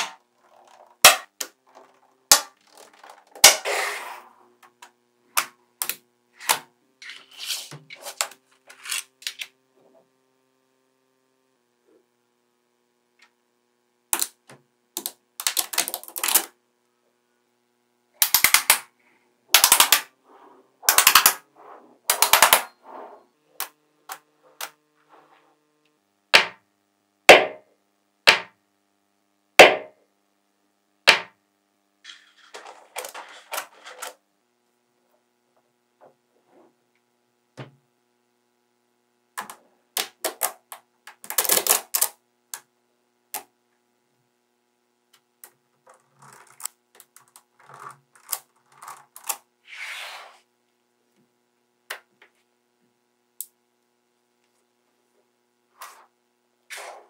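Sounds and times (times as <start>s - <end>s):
magnetic balls snapping together: 4.8s - 6.6s, 14.2s - 16.5s, 18.2s - 18.9s, 19.5s - 20.1s, 20.9s - 21.4s, 22.1s - 22.7s.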